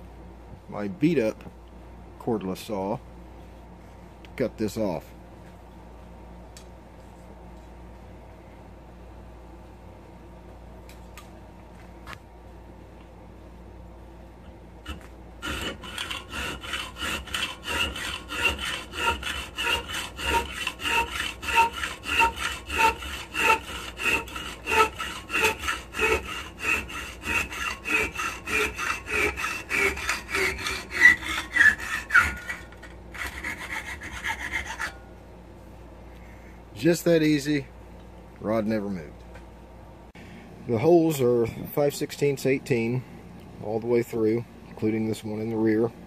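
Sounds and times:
hacksaw cutting metal rod: 0:14.9 - 0:35.0.

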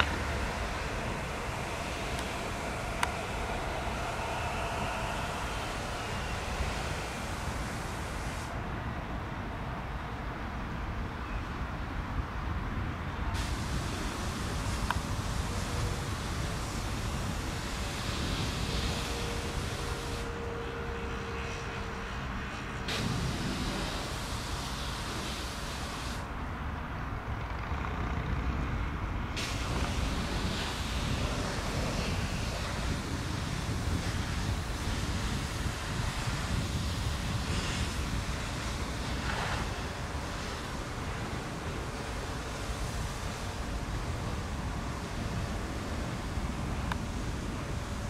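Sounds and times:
low rumble: 0:00.0 - 0:08.6
jet engines rumbling: 0:00.0 - 0:11.1, 0:13.1 - 0:48.0
wind buffeting microphone: 0:00.0 - 0:48.0.

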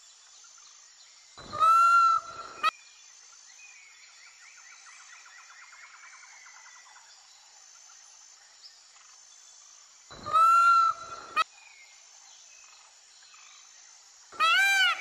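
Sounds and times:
faint outdoor background: 0:00.0 - 0:15.0
peacock calling: 0:01.4 - 0:02.7, 0:10.2 - 0:11.4, 0:14.4 - 0:15.0.

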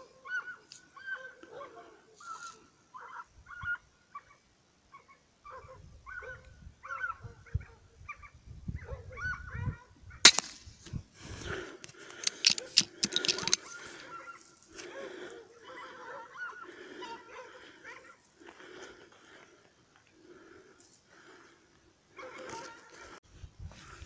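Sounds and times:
air rifle shot: 0:10.2 - 0:10.8.

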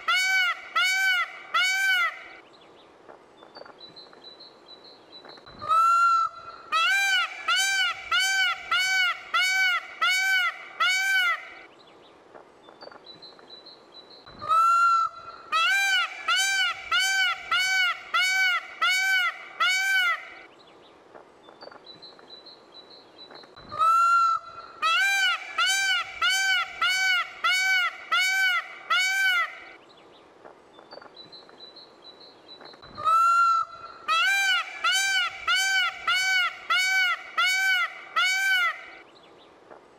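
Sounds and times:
peacock calling loudly: 0:00.0 - 0:02.4, 0:05.6 - 0:11.7, 0:14.3 - 0:20.5, 0:23.6 - 0:29.8, 0:32.9 - 0:39.0.

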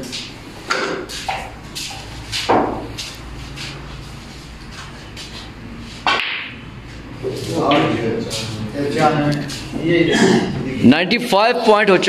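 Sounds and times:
snooker balls clicking: 0:06.0 - 0:07.0.

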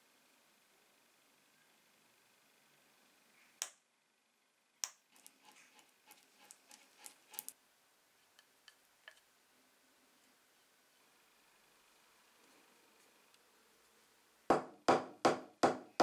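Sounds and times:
spatula ticking and tapping: 0:04.8 - 0:07.6.

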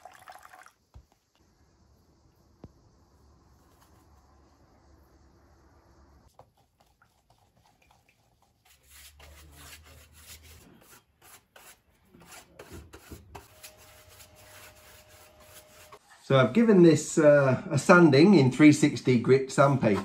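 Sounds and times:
brush strokes rubbing: 0:03.4 - 0:05.1, 0:06.3 - 0:16.2.

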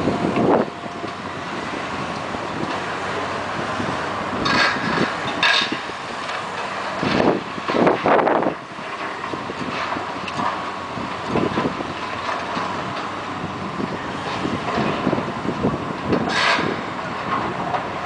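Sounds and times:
excavator machinery rumble: 0:00.0 - 0:18.0
scraping and crashing debris: 0:04.3 - 0:13.2.

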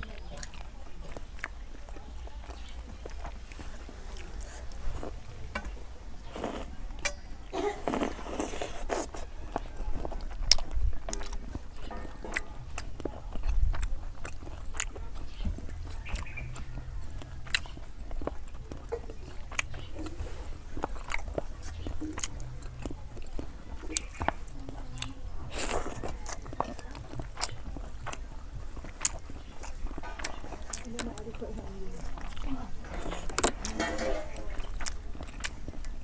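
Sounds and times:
person chewing: 0:00.0 - 0:36.0
fingers working food on plate: 0:25.6 - 0:35.9.

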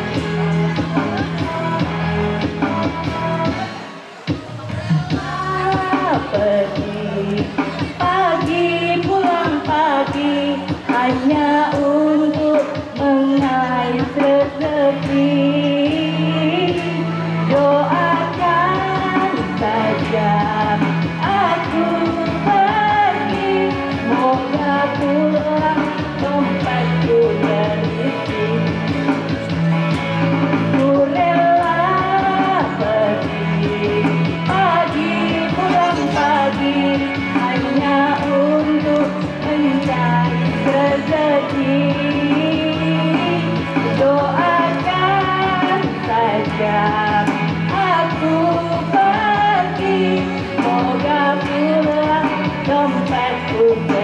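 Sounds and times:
lead singer singing: 0:00.0 - 0:29.6, 0:30.5 - 0:54.0
live band playing: 0:25.2 - 0:48.2.

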